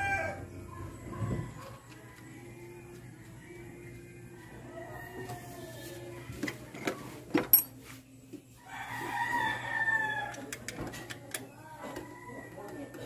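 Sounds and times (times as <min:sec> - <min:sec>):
rooster crowing: 0:00.0 - 0:02.7, 0:04.4 - 0:06.1, 0:08.6 - 0:10.5, 0:11.8 - 0:13.0.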